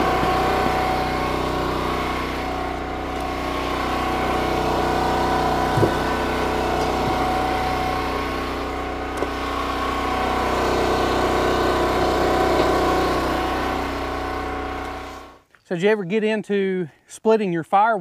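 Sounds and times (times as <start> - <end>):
gas engine running: 0.0 - 15.4.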